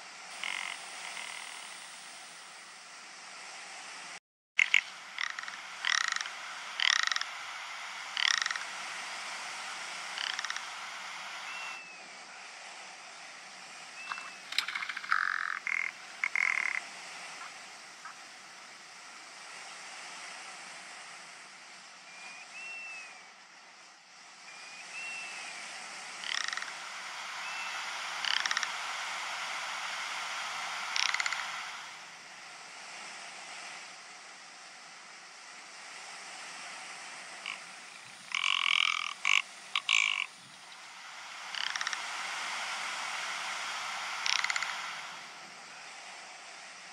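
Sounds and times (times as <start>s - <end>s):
steady hiss: 0.0s - 46.9s
ptarmigan calls: 0.3s - 1.7s, 4.6s - 8.8s, 10.0s - 11.8s, 26.2s - 29.3s, 37.4s - 40.4s.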